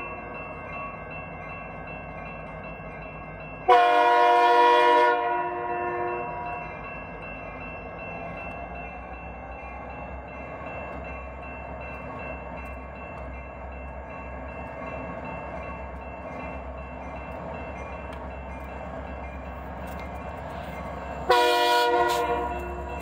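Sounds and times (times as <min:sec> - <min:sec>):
diesel locomotive engine rumble: 0:00.0 - 0:23.0.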